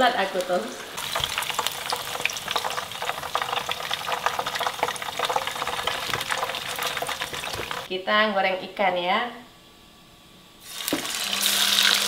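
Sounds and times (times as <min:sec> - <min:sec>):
oil sizzling in frying pan: 0:00.2 - 0:07.9, 0:10.6 - 0:12.0.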